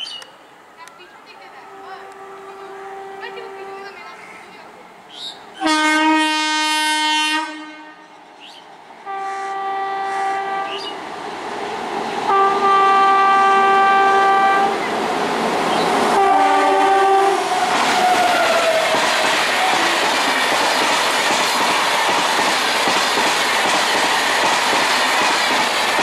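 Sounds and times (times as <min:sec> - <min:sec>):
train rumble: 0:00.8 - 0:26.0
locomotive horn blasts: 0:01.6 - 0:04.0, 0:05.6 - 0:08.1, 0:09.1 - 0:11.0, 0:12.3 - 0:14.8, 0:16.2 - 0:17.5.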